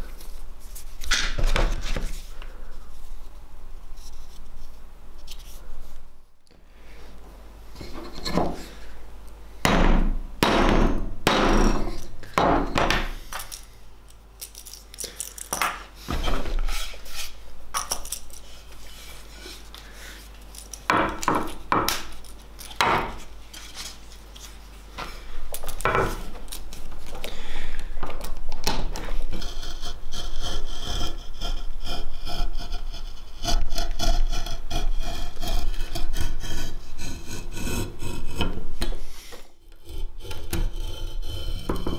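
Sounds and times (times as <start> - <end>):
blade scraping wooden handle: 29.2 - 38.6, 39.7 - 41.9.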